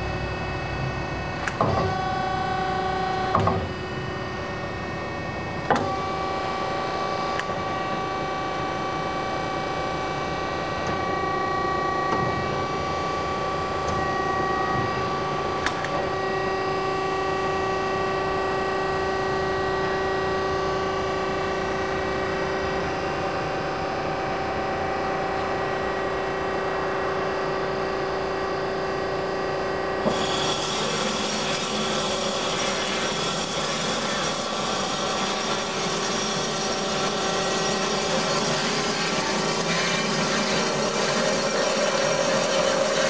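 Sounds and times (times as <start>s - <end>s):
machine hum: 0.0s - 43.0s
click: 1.4s - 1.6s, 15.6s - 16.0s
saw cutting metal: 30.1s - 43.0s.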